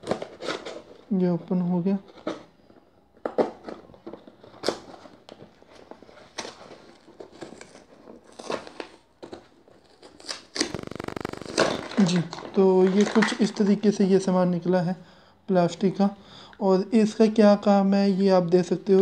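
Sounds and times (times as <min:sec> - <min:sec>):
cardboard tearing: 0:00.0 - 0:01.0, 0:05.8 - 0:12.5
cardboard and paper rustling: 0:02.0 - 0:13.5.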